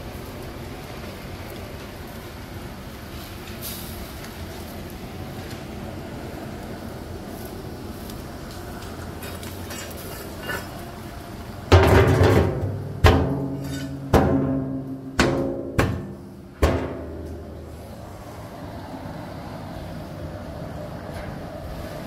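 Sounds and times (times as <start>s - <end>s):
hard knocks on hollow object: 11.7s - 13.5s, 14.1s - 17.1s.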